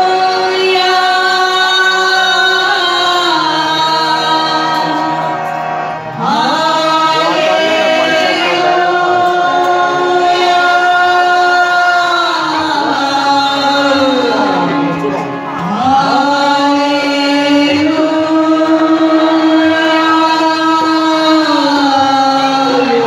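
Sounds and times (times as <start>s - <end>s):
amplified devotional singing: 0.0s - 23.0s.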